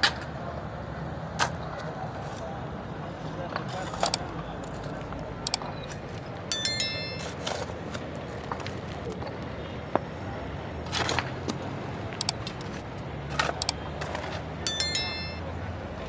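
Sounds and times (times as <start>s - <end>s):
sharp metallic clinks: 6.5s - 7.4s, 14.7s - 15.5s.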